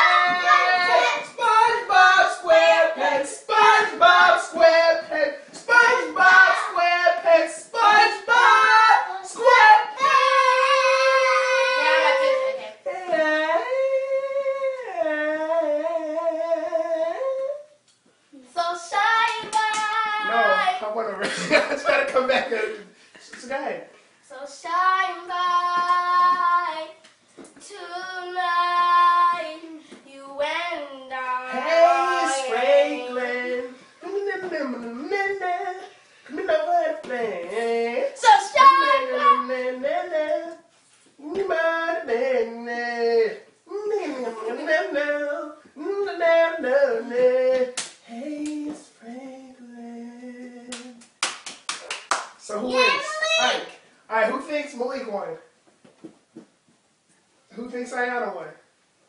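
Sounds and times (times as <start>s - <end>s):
child singing unaccompanied: 0.0s - 14.7s, 18.4s - 20.8s, 24.3s - 27.0s, 27.6s - 40.6s
high-pitched voice singing: 7.8s - 17.7s.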